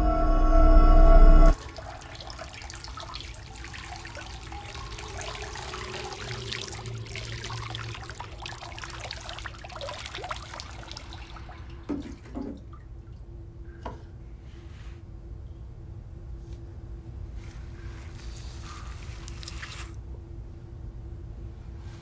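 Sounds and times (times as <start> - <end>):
low steady hum: 0.0 - 22.0
water pouring and splashing: 1.5 - 13.3, 17.8 - 20.0.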